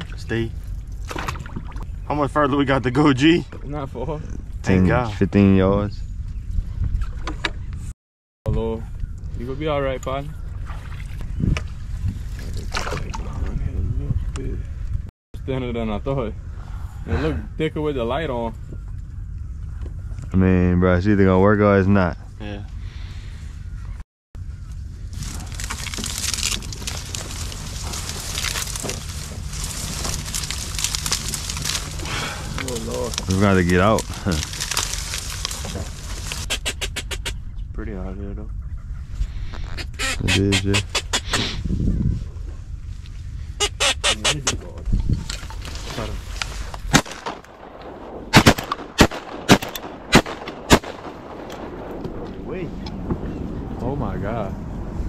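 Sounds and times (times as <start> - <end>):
low rumble: 8.5 - 36.5, 37.2 - 43.6, 44.4 - 55.0
dry reeds rustling and crackling: 24.4 - 36.8, 44.8 - 53.0
shotgun shots: 46.9 - 52.0.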